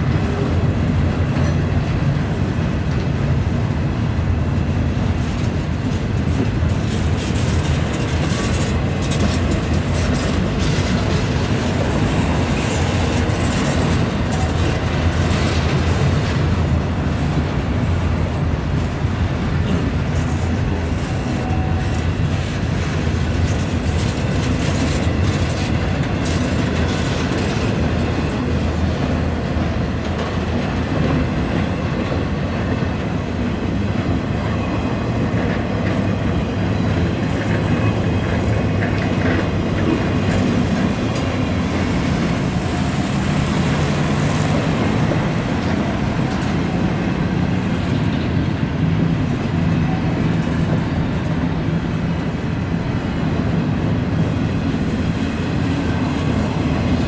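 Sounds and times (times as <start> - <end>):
clickety-clack over rail joints: 0.0 - 57.0
train wheels rumbling on rail: 0.0 - 57.0.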